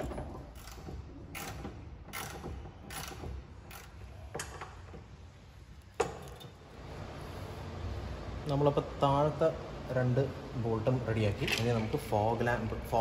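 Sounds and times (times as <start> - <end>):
hand ratchet clicking: 0.6 - 4.5.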